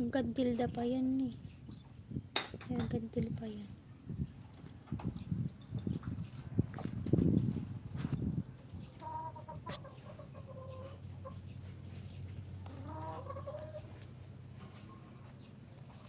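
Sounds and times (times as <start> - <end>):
chicken clucking: 8.6 - 16.0
chicken wavering calls: 8.7 - 14.1.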